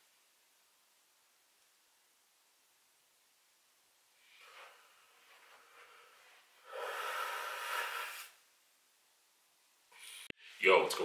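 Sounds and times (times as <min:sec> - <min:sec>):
man exhaling hard: 0:05.7 - 0:08.3.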